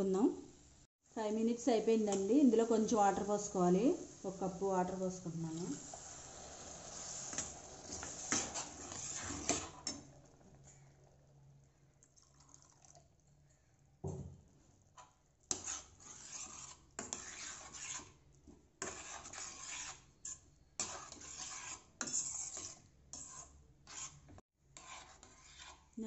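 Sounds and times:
spoon stirring liquid: 6.3 - 10.9, 15.0 - 26.0
spoon scraping steel pan: 6.9 - 10.2, 15.5 - 18.2, 18.8 - 26.0.

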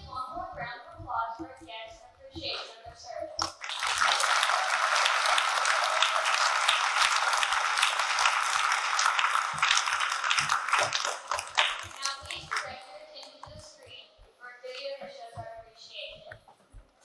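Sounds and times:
audience applauding: 3.6 - 12.7.

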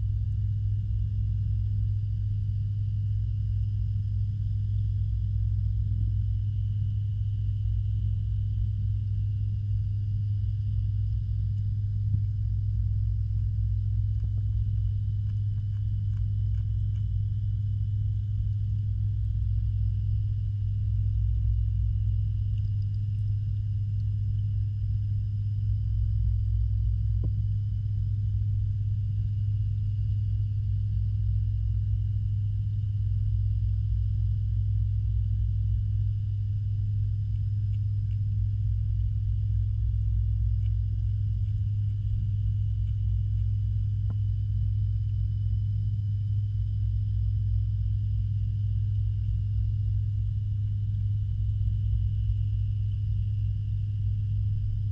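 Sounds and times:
underwater pump hum and rumble: 0.0 - 54.9.

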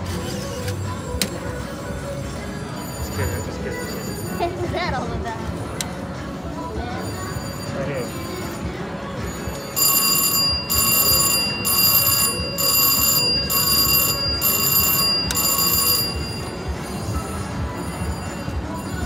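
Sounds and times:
casino background noise: 0.0 - 19.0
slot machine win bell ringing: 2.8 - 4.6, 7.0 - 19.0.

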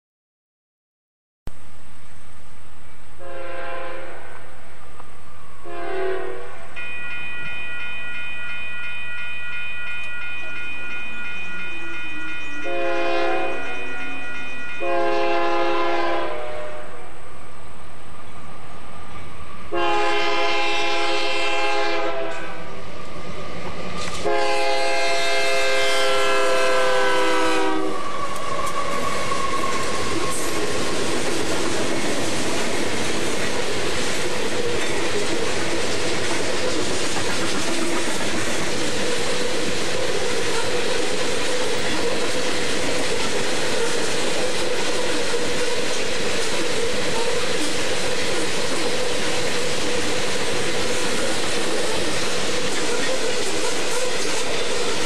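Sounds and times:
passing train rumble: 1.5 - 55.0
locomotive air horn blasts: 3.2 - 4.4, 5.6 - 8.5, 12.6 - 13.9, 14.8 - 17.1, 19.7 - 22.7, 24.2 - 28.2.

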